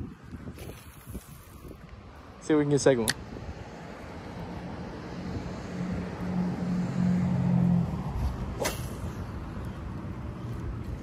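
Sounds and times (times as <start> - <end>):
sharp click: 3.0 - 3.2.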